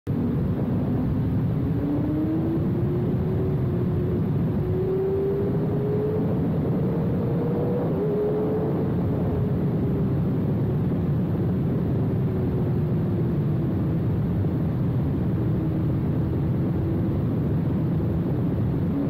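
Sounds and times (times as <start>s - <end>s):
low rushing noise: 0.1s - 19.0s
motorcycle engine accelerating: 0.6s - 10.3s.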